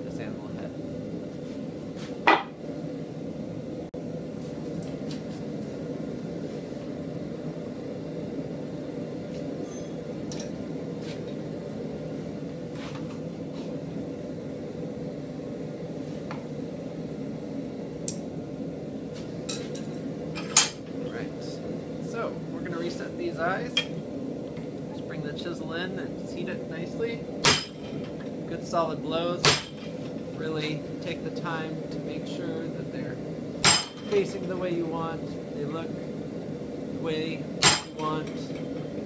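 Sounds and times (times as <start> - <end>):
shop machinery humming: 0.0 - 39.0.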